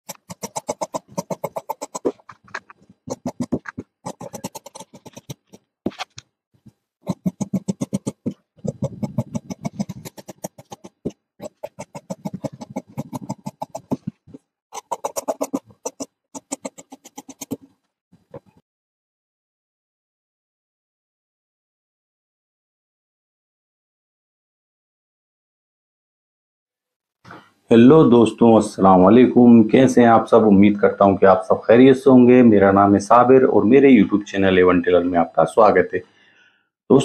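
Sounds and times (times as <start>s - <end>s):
shears snipping cloth: 0.1s - 6.1s, 7.1s - 17.6s.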